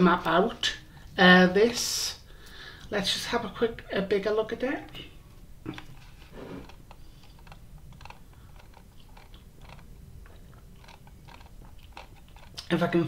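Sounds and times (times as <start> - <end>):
laptop keys clicking: 6.6 - 12.7.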